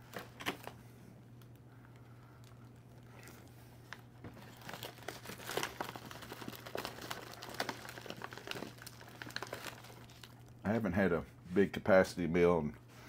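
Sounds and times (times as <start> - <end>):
food wrapper crinkling: 2.4 - 10.6.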